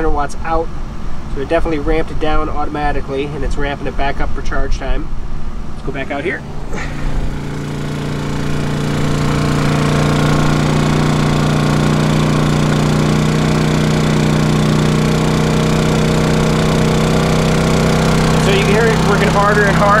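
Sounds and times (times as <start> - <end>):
generator engine running hard: 6.2 - 20.0.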